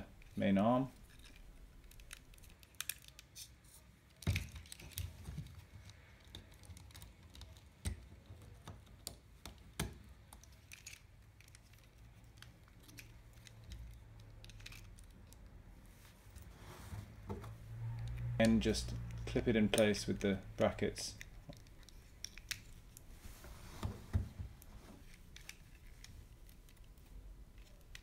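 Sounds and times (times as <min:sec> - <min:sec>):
plastic parts clicking and tapping: 0:01.1 - 0:03.5, 0:04.1 - 0:15.6, 0:17.3 - 0:23.1.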